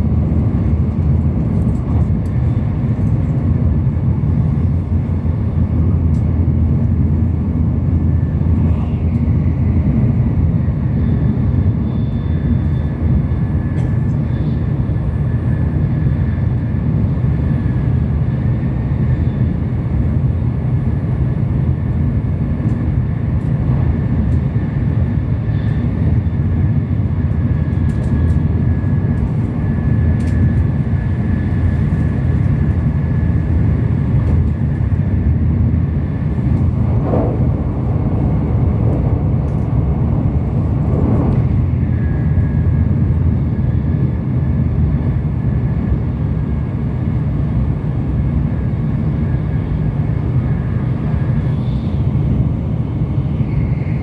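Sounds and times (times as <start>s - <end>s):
train cabin low rumble: 0.0s - 54.0s.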